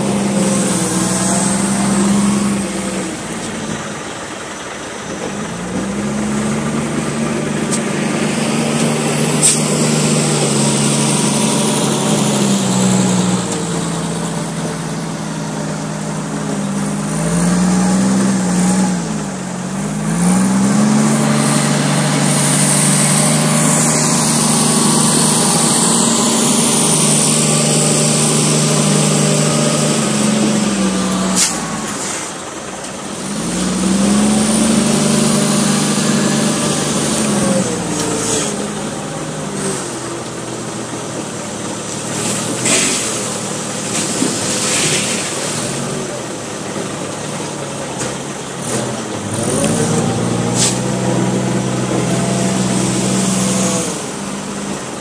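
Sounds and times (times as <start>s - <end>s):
diesel engine revving: 0.0s - 55.0s
short sharp hisses: 43.9s - 45.6s, 50.6s - 50.8s.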